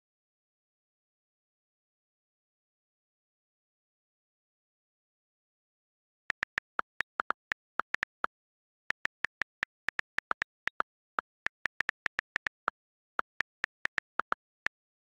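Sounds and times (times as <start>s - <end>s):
phone keyboard clicks: 6.3s - 8.3s, 8.9s - 15.0s.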